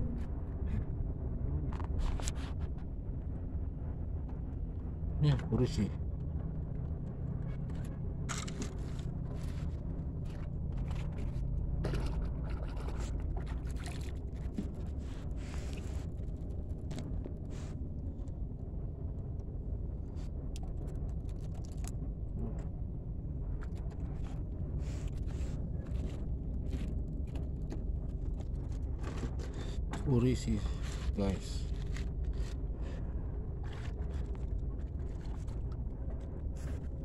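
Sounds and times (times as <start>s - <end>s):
low rumble: 0.0s - 37.0s
light clicks and scrapes: 7.4s - 12.2s.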